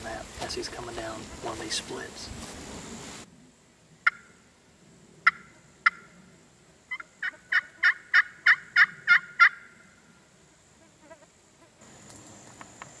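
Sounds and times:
turkey call yelps: 4.0s - 4.4s, 5.2s - 6.1s, 6.9s - 9.8s.

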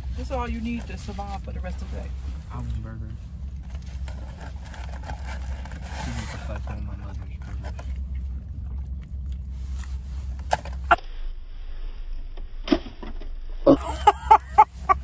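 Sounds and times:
car interior hum: 0.0s - 15.0s
person chewing fried food: 7.5s - 10.0s.

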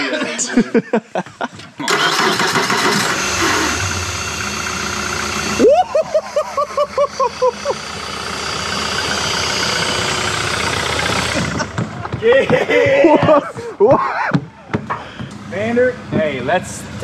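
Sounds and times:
outboard motor idling: 1.8s - 13.8s
rising whoop and pitched calls: 5.5s - 7.8s.

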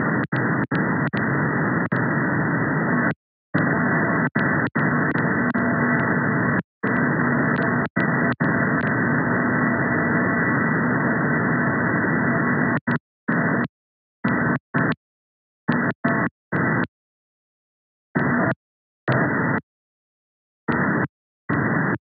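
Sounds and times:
faint steady radar tones: 0.0s - 15.0s, 15.6s - 16.9s, 18.1s - 19.7s, 20.6s - 22.0s
radio receiver hiss: 0.0s - 15.0s, 20.7s - 22.0s
clicks: 0.2s - 2.1s, 6.9s - 9.0s, 13.6s - 15.0s, 15.7s - 16.9s, 19.1s - 19.6s, 20.7s - 21.7s.

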